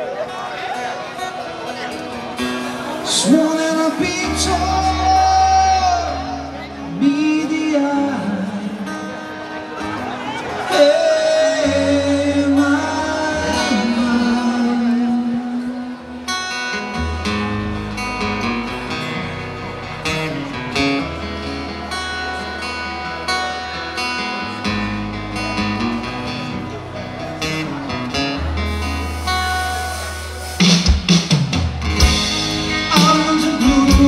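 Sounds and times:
live rock band playing: 0.0 - 34.0
person singing: 3.1 - 9.1, 10.5 - 16.1, 32.0 - 34.0
steady beat: 28.7 - 34.0.

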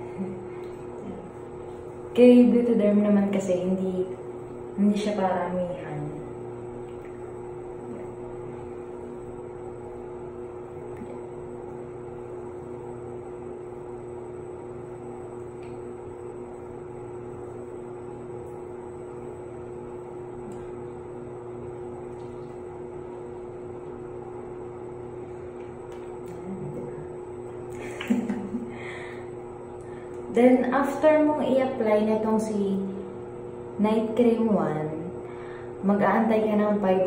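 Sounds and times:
steady mechanical hum: 0.0 - 37.0.

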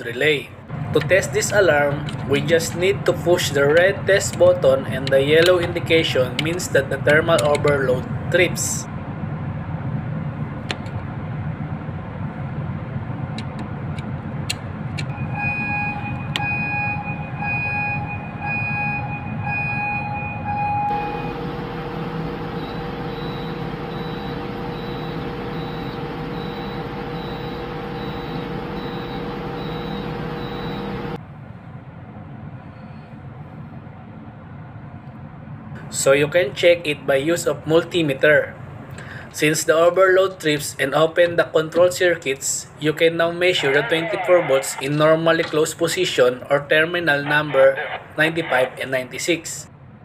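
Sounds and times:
machinery room hum: 0.0 - 50.0
alarm beeping: 15.1 - 31.2
faint high beep: 22.6 - 31.0.

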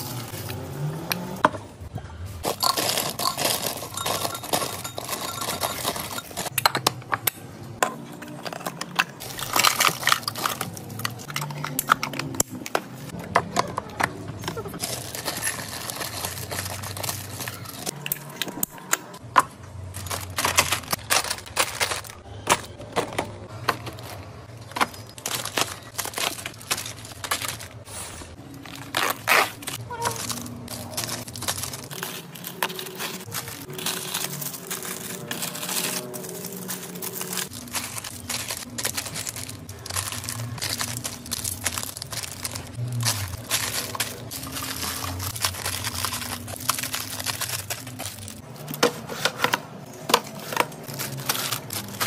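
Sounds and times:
plastic wrappers crinkling: 2.3 - 6.6, 8.3 - 13.2, 14.4 - 19.2, 19.8 - 52.0
sweets dropping into glass jars: 2.4 - 6.8, 29.6 - 48.6.

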